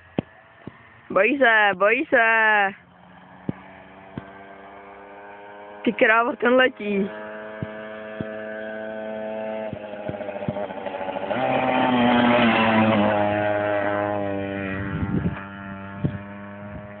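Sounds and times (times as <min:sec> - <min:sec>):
moped engine passing by: 0:00.0 - 0:17.0.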